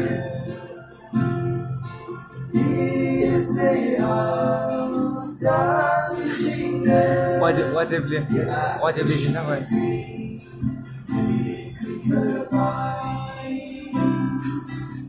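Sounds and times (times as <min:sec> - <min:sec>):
acoustic guitar strumming: 0:00.0 - 0:15.0
man singing: 0:02.6 - 0:10.5, 0:11.2 - 0:14.7.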